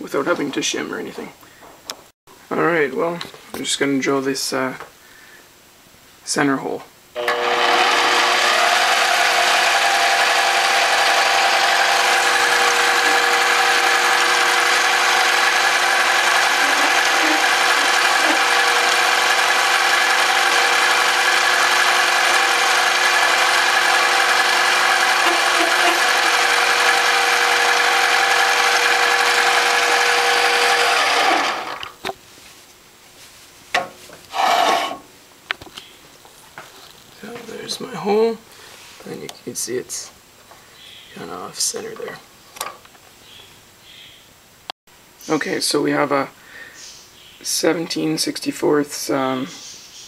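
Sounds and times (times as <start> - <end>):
lathe machine whine: 7.2 - 31.8.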